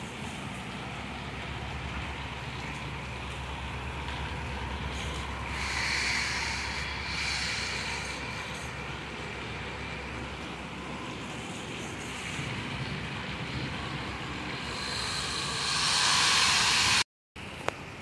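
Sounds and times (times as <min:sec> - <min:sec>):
heavy rain on trees and street: 0:00.0 - 0:06.1.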